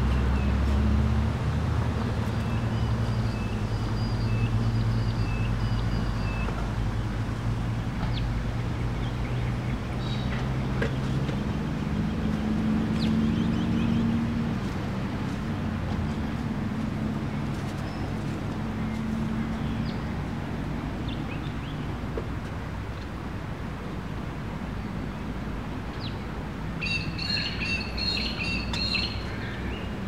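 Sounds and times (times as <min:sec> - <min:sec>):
engine running at low speed: 0:00.0 - 0:30.0
bird chirps: 0:02.2 - 0:06.6, 0:26.8 - 0:29.9.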